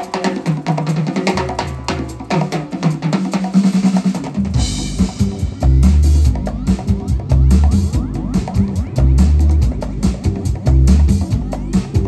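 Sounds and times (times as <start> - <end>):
congas: 0.0 - 12.0
drum kit: 0.0 - 12.0
deep bass: 4.6 - 12.0
synth: 5.2 - 12.0.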